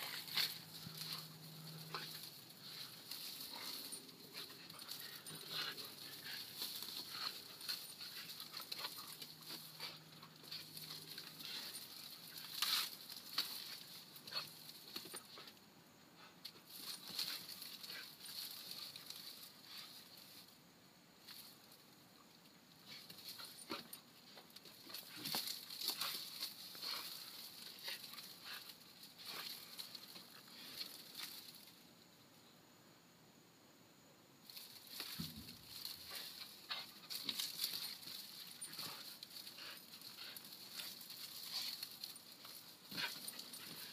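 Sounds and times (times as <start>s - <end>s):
clicks and rustles: 0.0s - 15.6s, 22.8s - 31.8s, 34.4s - 43.9s.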